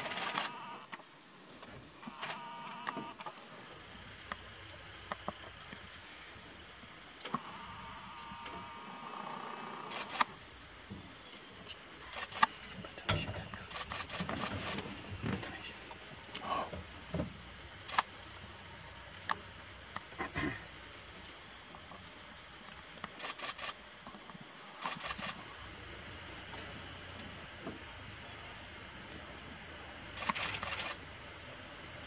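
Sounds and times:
camcorder zoom motor whirring: 0.0 - 0.9, 2.0 - 3.2, 7.3 - 10.3
sharp clicks: 0.0 - 1.0, 2.0 - 3.3, 9.9 - 10.3, 12.1 - 14.8, 17.9 - 18.1, 23.0 - 23.8, 24.8 - 25.4, 30.2 - 31.0
steady high hiss: 0.0 - 32.0.

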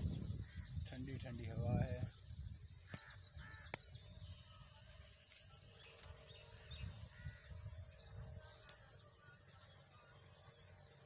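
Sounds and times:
wind rumble on microphone: 0.0 - 4.7, 6.3 - 8.6
distant birds calling: 0.0 - 11.0.

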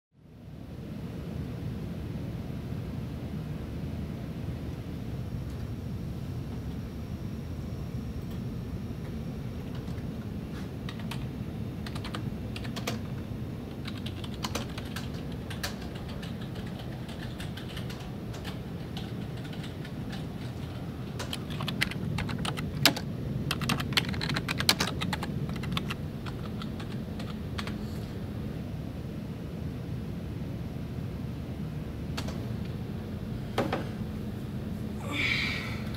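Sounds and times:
low background hum: 0.2 - 35.9
typing on computer keyboard: 10.9 - 13.1, 13.7 - 27.8.

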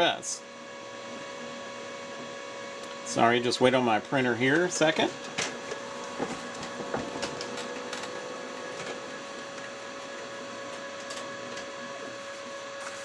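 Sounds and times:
printer whirring: 0.1 - 13.0.

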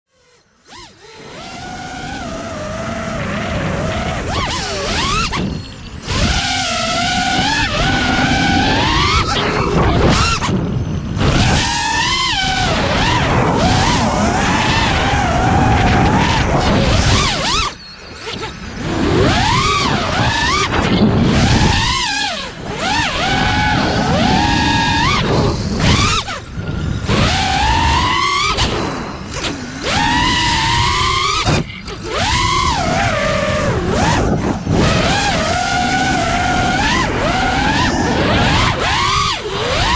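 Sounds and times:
drone motors whining: 0.1 - 39.9
low rushing: 0.6 - 39.9.

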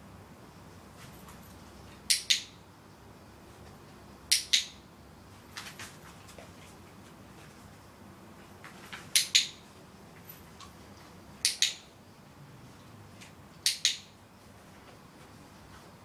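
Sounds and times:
dog-training clicker click-clack: 2.1 - 2.6, 4.3 - 4.8, 9.1 - 9.6, 11.4 - 11.9, 13.6 - 14.2.

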